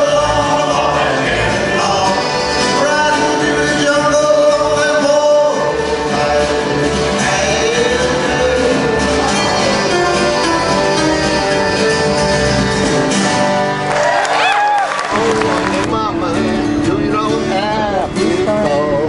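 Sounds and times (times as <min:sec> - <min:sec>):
men singing: 0:00.0 - 0:11.7, 0:16.6 - 0:19.0
acoustic guitars and accordion: 0:00.0 - 0:14.0, 0:15.1 - 0:19.0.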